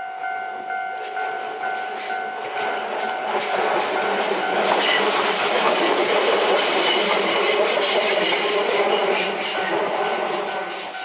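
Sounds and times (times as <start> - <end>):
level crossing bell ringing: 0.0 - 3.3
train wheels rumbling and clacking: 0.5 - 11.0.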